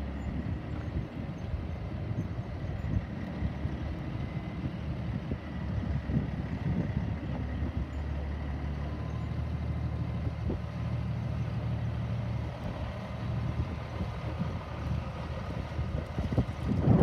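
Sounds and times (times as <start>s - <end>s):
diesel truck engine droning: 0.0s - 17.0s.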